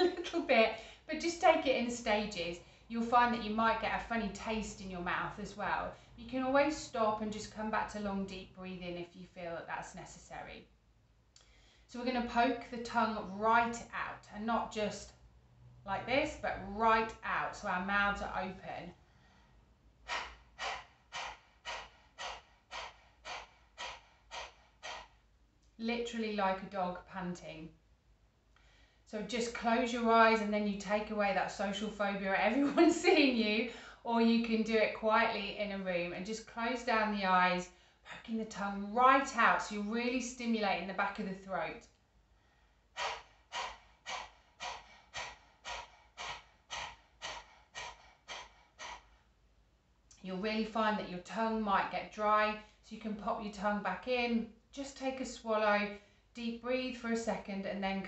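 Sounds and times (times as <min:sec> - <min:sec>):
woman panting rapidly: 0:19.0 - 0:25.3, 0:42.4 - 0:49.5.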